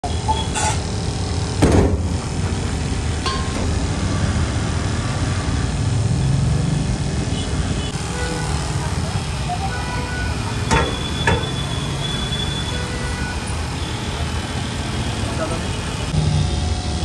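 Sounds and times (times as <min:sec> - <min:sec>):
metal stand clanking on steel counter: 0:03.2 - 0:03.8.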